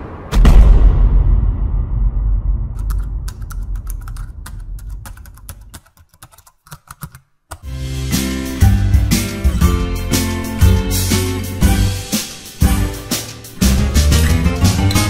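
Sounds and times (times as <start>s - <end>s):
deep boom rumble: 0.0s - 5.6s
keyboard key clicks: 2.8s - 7.7s.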